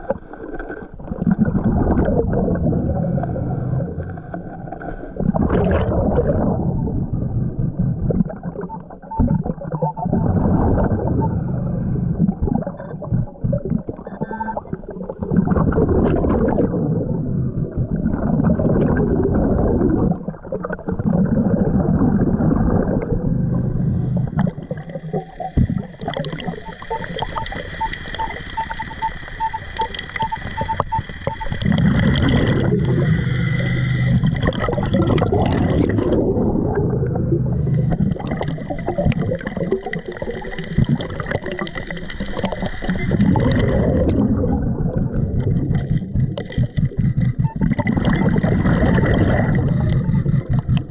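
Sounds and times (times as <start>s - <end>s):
gurgling underwater noise: 0.0s - 50.9s
short quick beeps: 26.5s - 31.6s.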